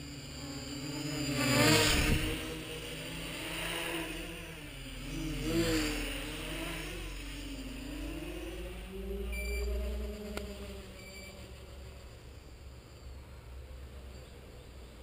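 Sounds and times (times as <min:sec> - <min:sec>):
quadcopter motors whirring: 0:00.0 - 0:14.8.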